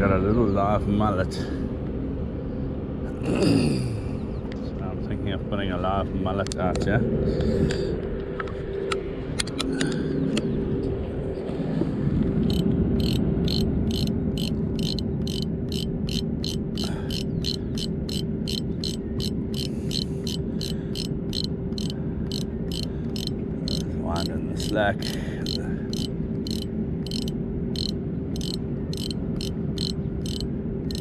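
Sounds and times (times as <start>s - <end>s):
outdoor noise: 0.0s - 31.0s
steady low hum: 0.0s - 31.0s
scattered clicks and knocks: 12.4s - 31.0s
fishing reel clicking: 12.5s - 31.0s.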